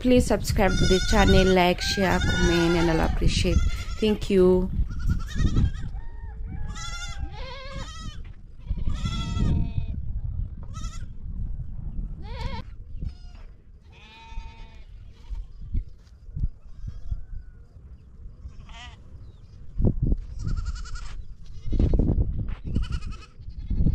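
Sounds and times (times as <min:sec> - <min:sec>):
goats and sheep bleating: 0:00.6 - 0:04.3, 0:04.9 - 0:06.0, 0:06.7 - 0:10.0, 0:12.2 - 0:15.4, 0:18.4 - 0:19.1, 0:20.3 - 0:22.1, 0:22.7 - 0:23.9.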